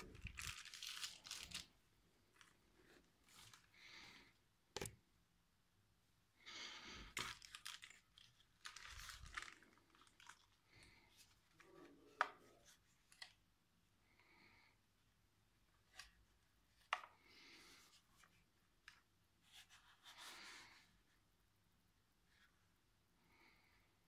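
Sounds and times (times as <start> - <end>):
bubble wrap rustling: 0.0 - 3.7, 7.1 - 11.4.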